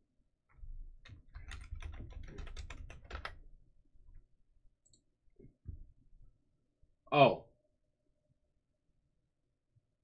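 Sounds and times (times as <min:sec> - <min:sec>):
computer keyboard typing: 0:01.3 - 0:03.4.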